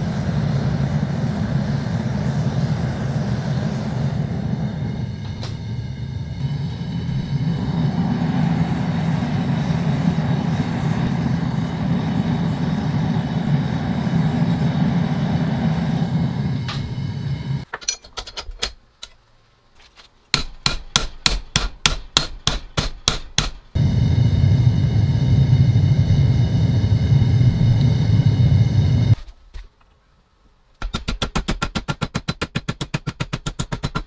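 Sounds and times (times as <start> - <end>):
burner roaring: 0.0 - 17.6, 23.8 - 29.2.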